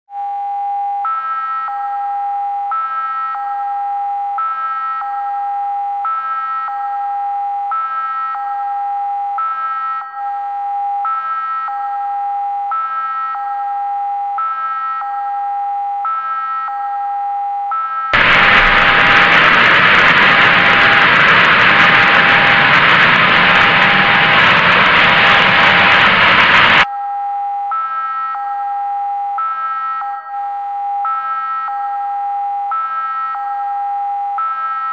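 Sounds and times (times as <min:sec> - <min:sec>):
loud static hiss: 0:18.2 - 0:26.8.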